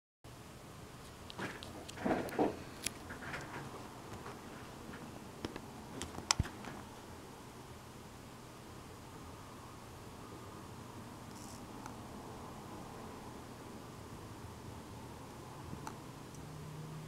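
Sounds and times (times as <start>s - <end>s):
rustling and knocks: 1.4s - 5.1s.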